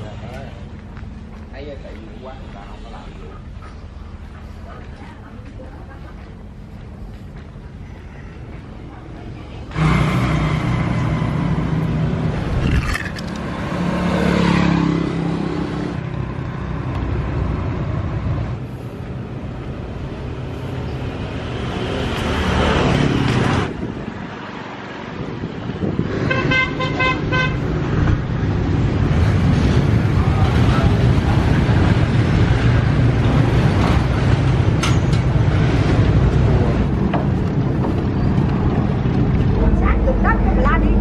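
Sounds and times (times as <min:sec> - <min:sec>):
vehicles passing close by: 0:00.0 - 0:41.0
car horn short toots: 0:26.3 - 0:27.6.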